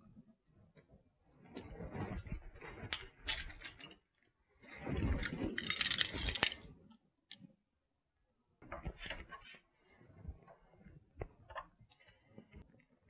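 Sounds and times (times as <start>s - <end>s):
metal clinking and rattling: 2.9s - 4.0s, 5.0s - 6.6s.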